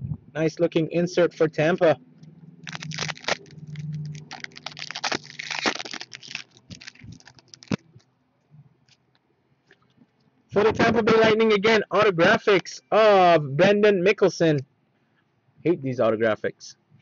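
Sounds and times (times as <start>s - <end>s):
foil pack crinkling and rustling: 2.6s - 8.1s.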